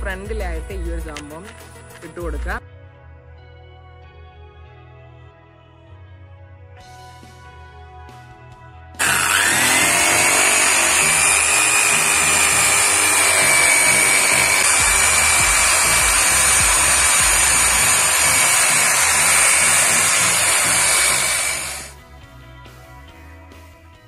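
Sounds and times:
buffing pad polishing: 0:09.0 - 0:21.9
electric drill whining: 0:09.0 - 0:21.9.

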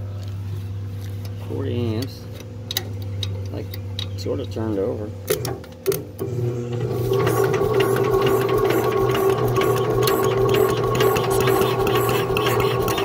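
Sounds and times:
electric starter whirring and clicking: 0:05.2 - 0:13.0.

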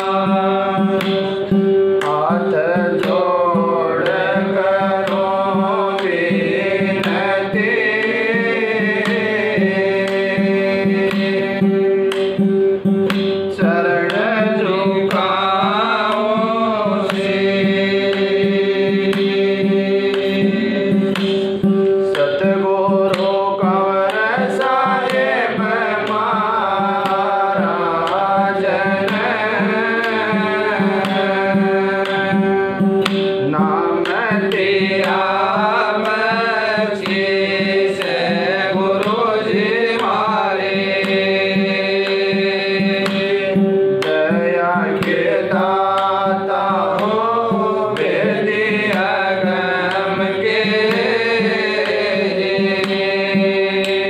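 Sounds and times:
man singing into microphone: 0:00.0 - 0:12.2, 0:13.6 - 0:54.0.

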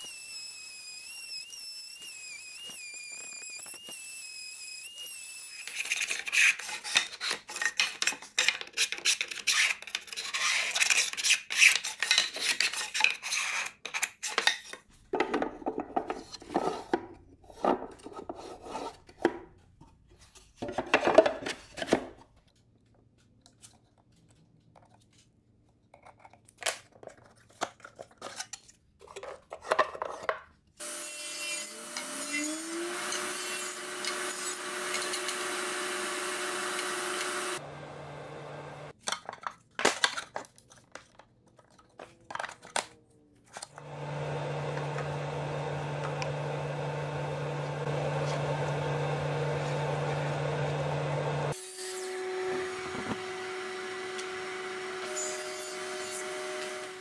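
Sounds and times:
table saw motor running: 0:30.8 - 0:38.9, 0:43.8 - 0:57.0
hand tool shaving wood: 0:31.4 - 0:37.8, 0:44.8 - 0:51.6.

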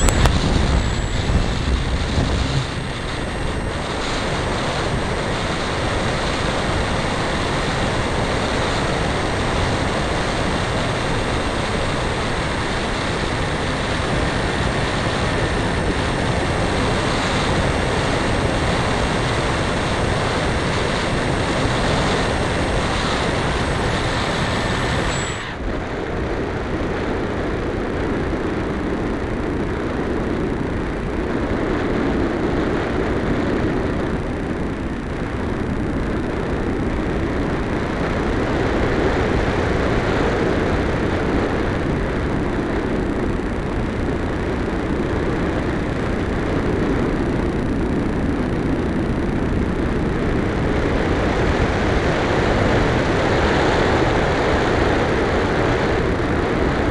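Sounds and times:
rushing airflow: 0:00.0 - 0:27.2
high motor whine: 0:00.0 - 0:56.9.

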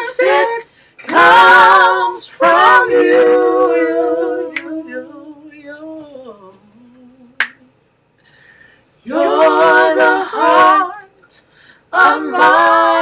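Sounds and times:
gospel voices singing a cappella: 0:00.0 - 0:07.8, 0:08.4 - 0:13.0
finger snaps: 0:04.5 - 0:04.8, 0:07.3 - 0:08.0.

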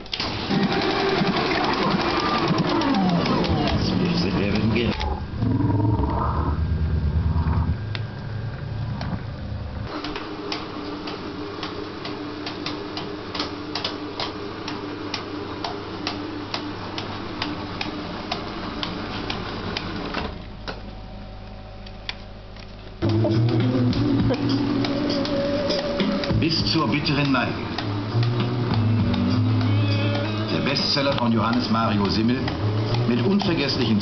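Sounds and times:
film clicking through rollers: 0:00.0 - 0:05.2, 0:21.9 - 0:34.0
motor hum: 0:00.0 - 0:34.0.

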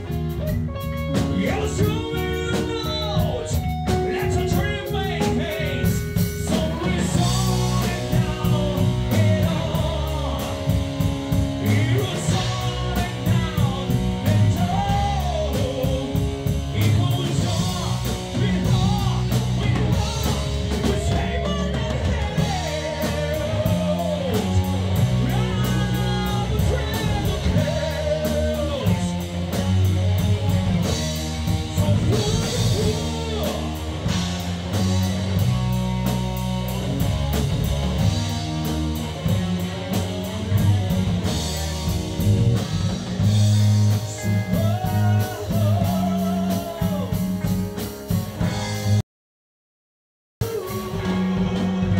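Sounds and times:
distorted electric guitar: 0:00.0 - 0:49.0, 0:50.4 - 0:51.9
drum kit: 0:00.0 - 0:49.0, 0:50.4 - 0:51.9
man singing: 0:01.0 - 0:29.8, 0:30.8 - 0:35.0, 0:43.8 - 0:47.5, 0:50.4 - 0:51.9.

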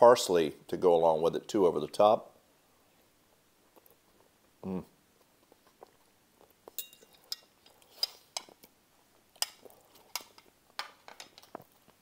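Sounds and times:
fork clinking on a plate: 0:06.7 - 0:08.5.

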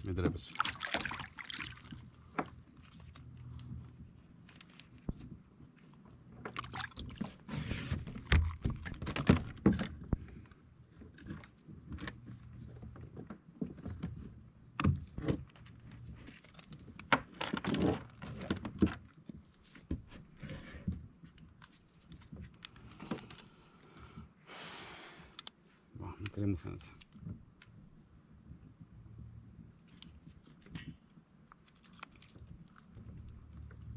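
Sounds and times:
water splashing: 0:00.4 - 0:02.1, 0:06.5 - 0:07.4
knocks and rattles on kayak: 0:07.2 - 0:20.2.

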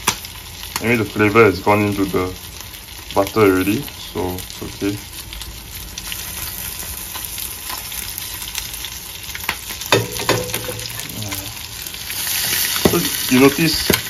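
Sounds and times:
fish frying in butter: 0:00.0 - 0:14.0.

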